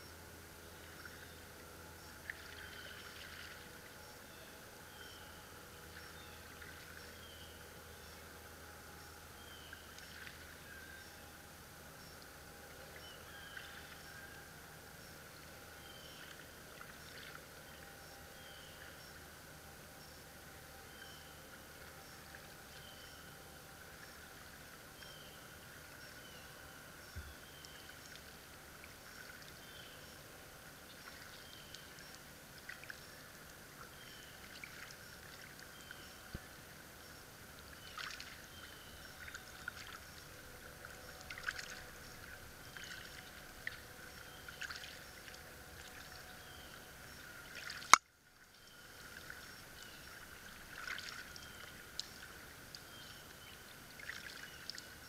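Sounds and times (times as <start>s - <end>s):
canoe paddle dipping in water: 2.2s - 3.7s, 37.5s - 46.6s, 47.4s - 48.0s, 48.7s - 55.0s.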